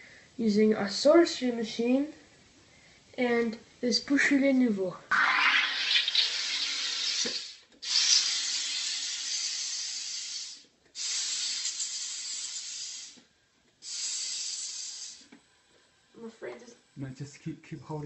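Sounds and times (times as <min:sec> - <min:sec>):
gas hissing into bottle: 0:05.1 - 0:15.4.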